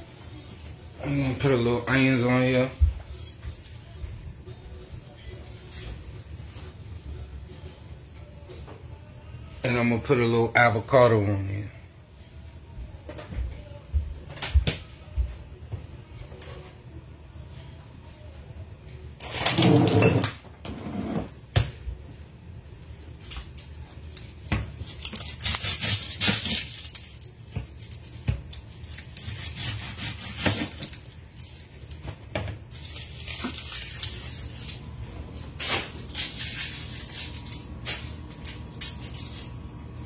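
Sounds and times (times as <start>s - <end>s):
utensils and dishes clinking: 23.2s - 40.0s.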